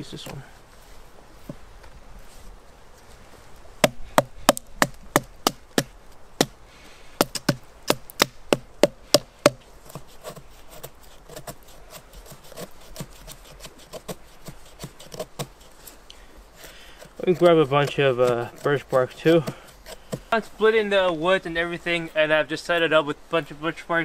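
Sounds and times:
wood splitting knocks: 0:03.8 - 0:06.5, 0:07.2 - 0:10.4.

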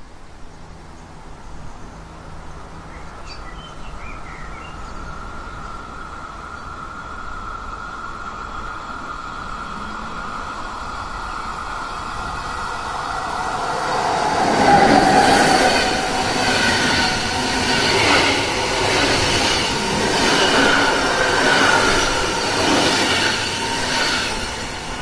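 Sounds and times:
electric train passing: 0:04.4 - 0:25.0
train wheels rolling on track: 0:05.1 - 0:25.0.

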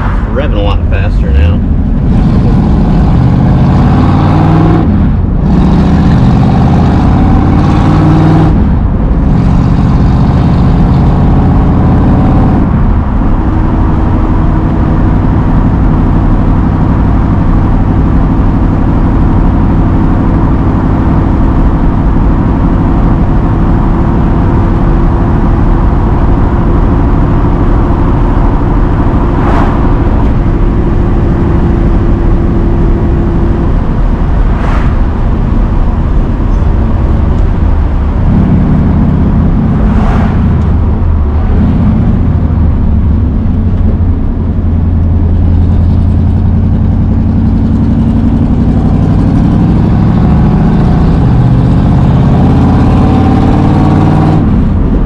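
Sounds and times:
car engine accelerating through gears: 0:00.0 - 0:55.0.

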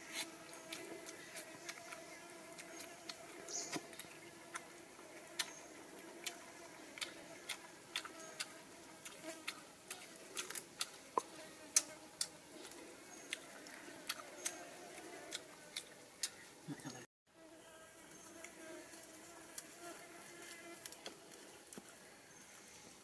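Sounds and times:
chewing clicks and smacks: 0:07.0 - 0:16.4.

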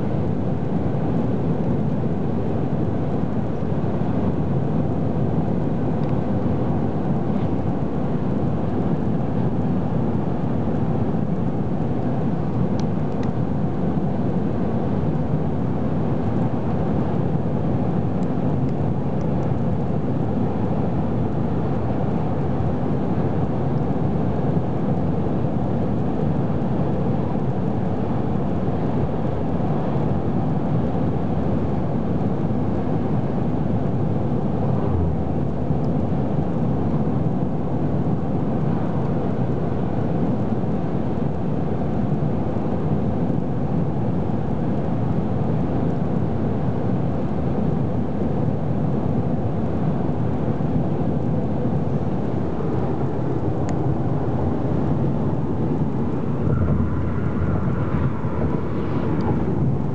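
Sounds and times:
car tyres and engine rumble: 0:33.3 - 0:37.3, 0:52.2 - 0:59.9.

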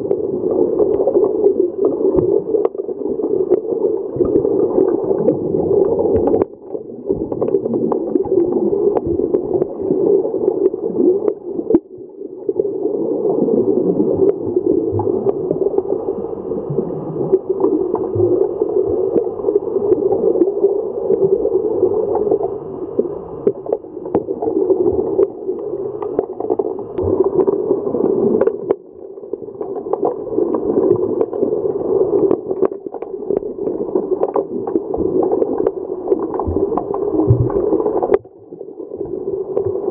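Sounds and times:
underwater churning and bubbles: 0:00.0 - 0:39.9
sharp underwater clicks: 0:25.2 - 0:27.6.

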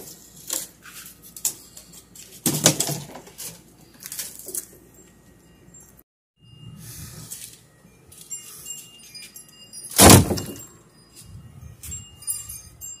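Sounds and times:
plywood clattering into bin: 0:02.4 - 0:03.4, 0:10.0 - 0:10.6.

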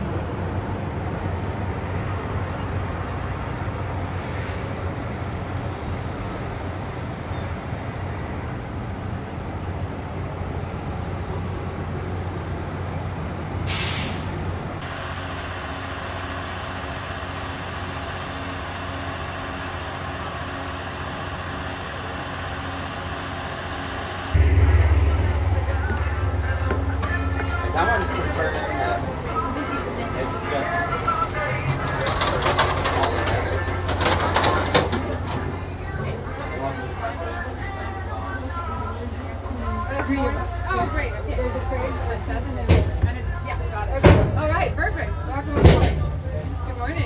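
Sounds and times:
train hum: 0:00.0 - 0:47.0
air hissing: 0:13.6 - 0:14.4
steady tones: 0:23.3 - 0:32.0.

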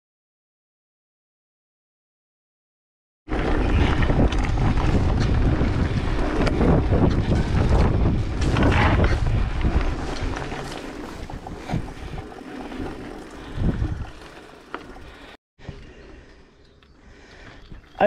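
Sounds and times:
wind buffeting microphone: 0:03.3 - 0:14.4
tyres rolling over dirt: 0:03.3 - 0:15.4
bike rattling over bumps: 0:03.3 - 0:15.8.

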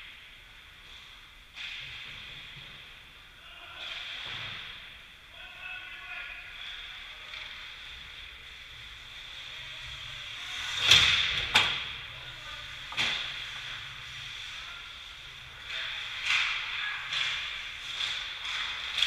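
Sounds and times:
ice skates scraping: 0:12.6 - 0:19.0.

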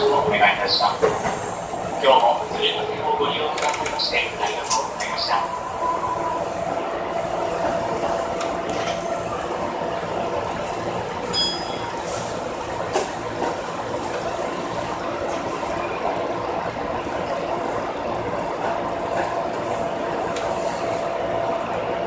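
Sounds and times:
brief high ring: 0:11.3 - 0:11.9.

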